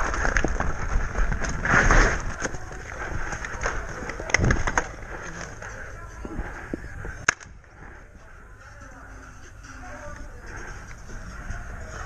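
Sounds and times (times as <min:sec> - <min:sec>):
running footsteps on dirt: 0:00.0 - 0:08.3.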